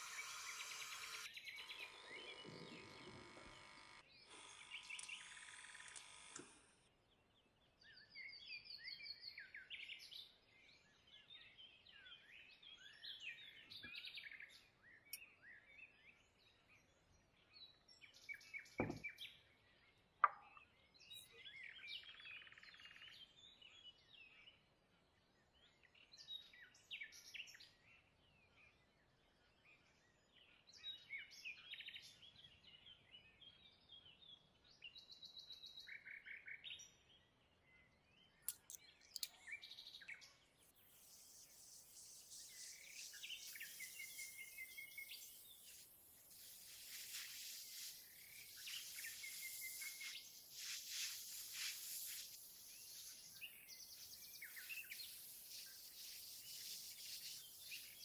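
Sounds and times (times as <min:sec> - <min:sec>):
faint birds chirping: 0:00.0 - 0:58.0
sharp click: 0:38.4 - 0:39.4
steady hiss: 0:40.7 - 0:58.0.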